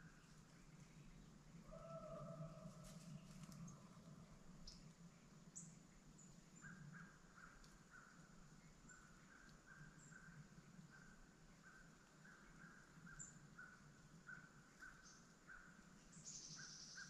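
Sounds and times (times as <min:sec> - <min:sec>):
distant animal calls: 0:01.6 - 0:03.0.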